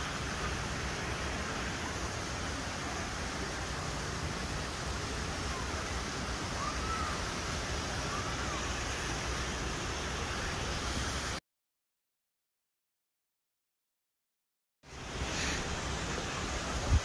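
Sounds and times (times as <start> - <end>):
wind: 0.0 - 11.4, 14.8 - 17.0.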